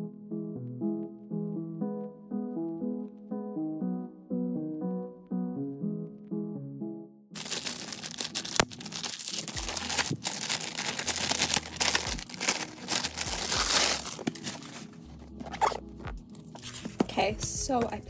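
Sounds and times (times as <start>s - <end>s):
package wrapping crinkling and tearing: 7.4s - 16.9s.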